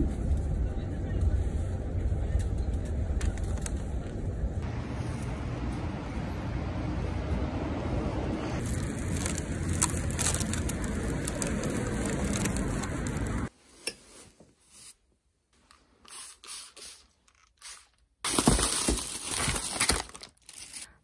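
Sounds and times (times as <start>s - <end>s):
outdoor noise: 0.0s - 21.0s
plastic bags rustling: 8.6s - 13.5s, 18.3s - 21.0s.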